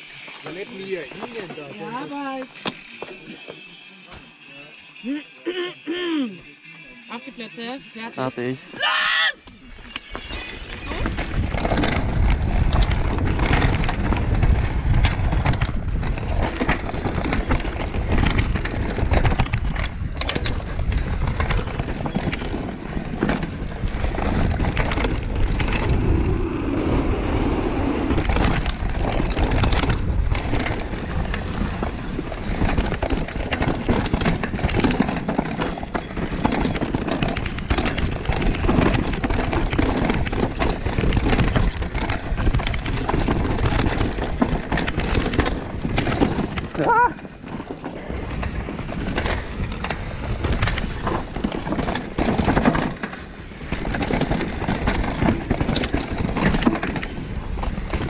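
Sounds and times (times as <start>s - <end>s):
wind and tyre noise: 0.0s - 5.1s, 6.6s - 58.0s
bike chain and frame rattling: 0.0s - 5.2s, 6.7s - 58.0s
disc brake squeals: 9.7s - 11.2s.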